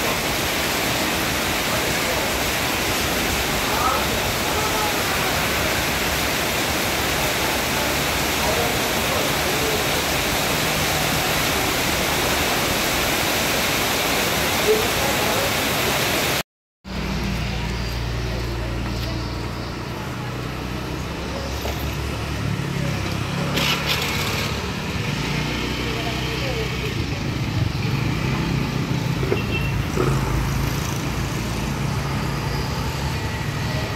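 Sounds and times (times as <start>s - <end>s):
heavy rain pouring on street: 0.0s - 16.4s, 19.4s - 33.9s
faint voices: 1.5s - 12.5s.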